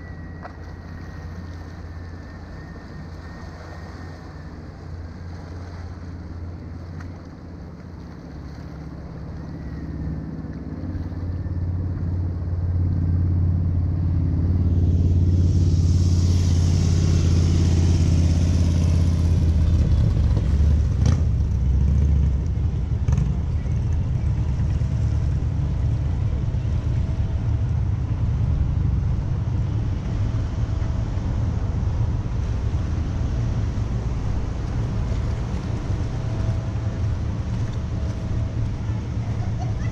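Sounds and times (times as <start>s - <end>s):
traffic engine rumble: 0.0s - 39.9s
traffic hiss: 14.6s - 19.8s.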